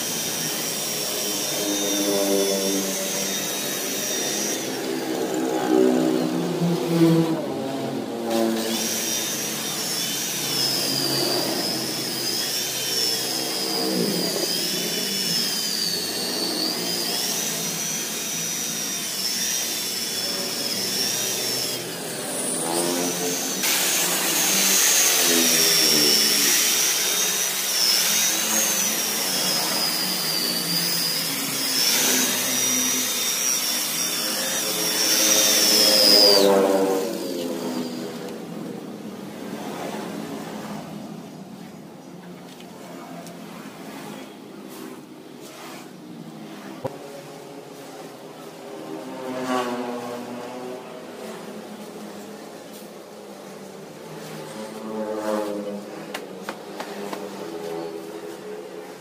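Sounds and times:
electric car polisher whining: 0.0 - 39.0.

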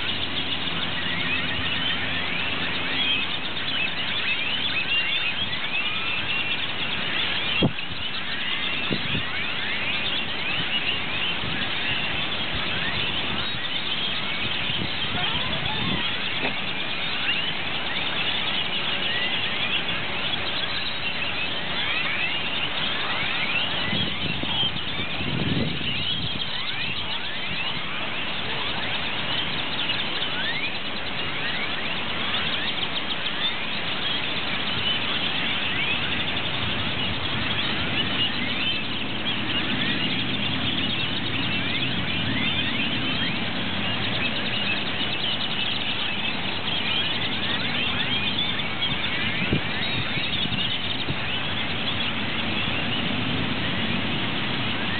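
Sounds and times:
flock of birds chirping: 0.0 - 54.9.

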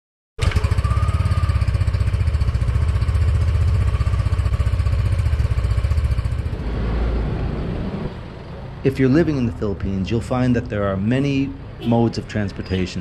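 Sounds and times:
scooter engine idling: 0.4 - 6.6.

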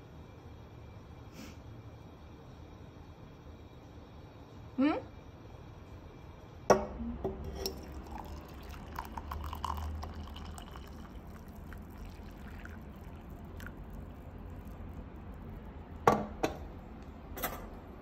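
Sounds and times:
tea pouring into a mug: 7.5 - 16.0.

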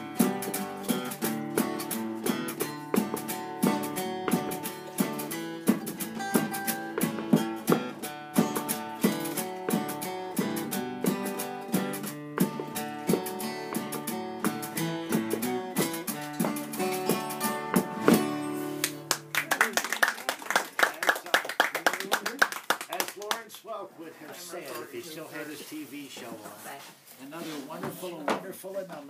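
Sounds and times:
acoustic guitar playing: 0.0 - 19.4.

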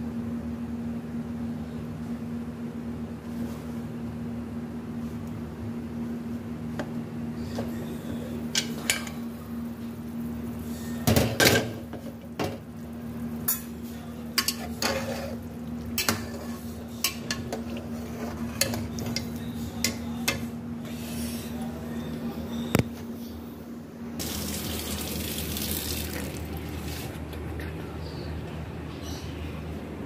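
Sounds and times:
metal spoon scraping a pot: 14.4 - 15.4.

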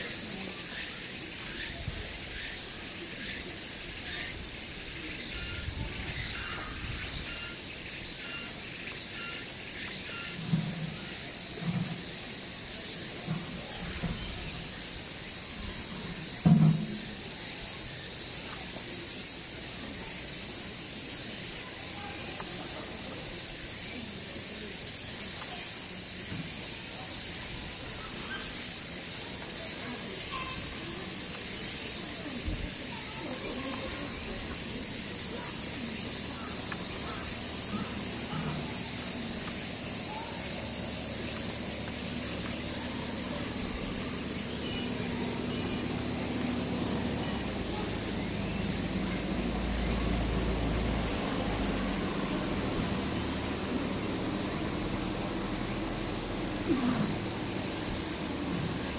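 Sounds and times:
faint voices murmuring: 0.0 - 58.9
insects singing: 0.0 - 58.9.

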